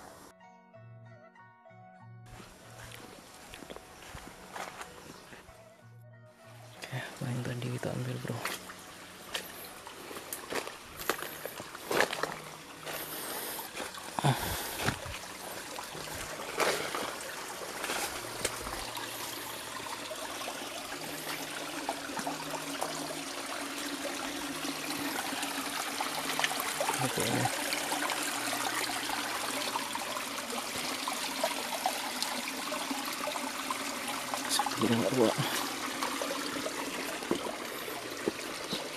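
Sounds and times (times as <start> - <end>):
stream trickling over rocks: 2.4 - 5.5, 6.8 - 38.9
footsteps knocking and rustling: 14.8 - 15.2.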